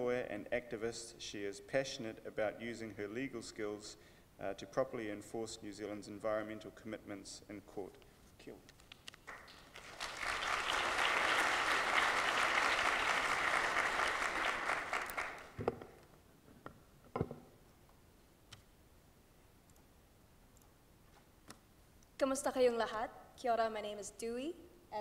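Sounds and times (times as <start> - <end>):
audience applauding: 9.2 - 15.6.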